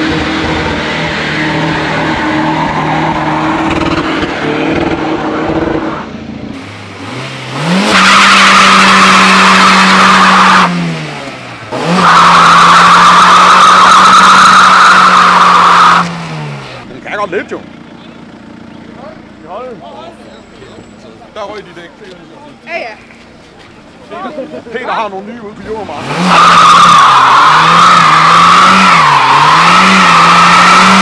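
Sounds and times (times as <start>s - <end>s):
car engine revving high: 0.0s - 16.9s, 25.8s - 31.0s
car engines idling: 0.0s - 31.0s.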